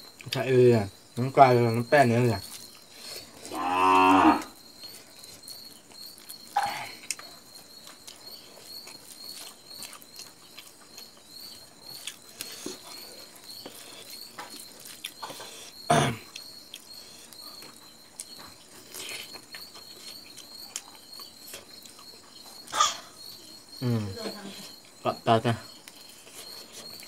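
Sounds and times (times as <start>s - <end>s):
cow mooing: 3.5s - 4.5s.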